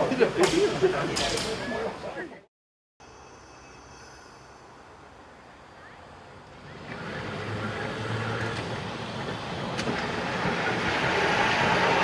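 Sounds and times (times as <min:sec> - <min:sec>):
electric tram rumbling on track: 0:03.2 - 0:12.0.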